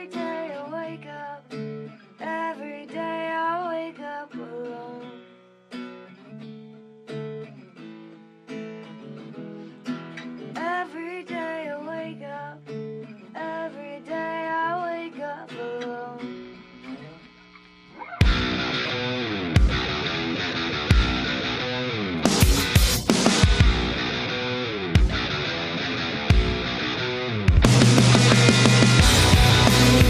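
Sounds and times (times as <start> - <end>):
woman singing: 0.0 - 5.3, 10.4 - 17.1
strummed acoustic guitar: 0.0 - 30.0.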